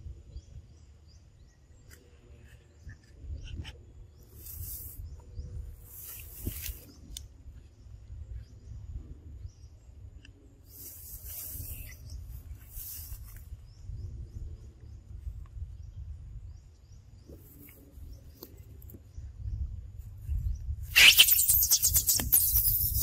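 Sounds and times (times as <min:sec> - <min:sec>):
wind rumble on microphone: 0:00.0 - 0:23.0.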